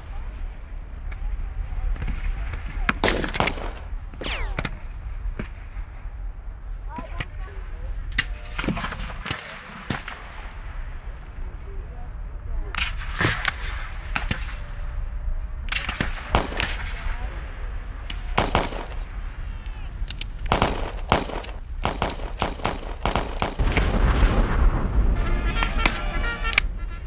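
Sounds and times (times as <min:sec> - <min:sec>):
heavy low rumble: 0:00.0 - 0:27.0
rifle shots: 0:03.0 - 0:05.5, 0:15.7 - 0:17.3, 0:18.1 - 0:19.2, 0:20.3 - 0:26.2.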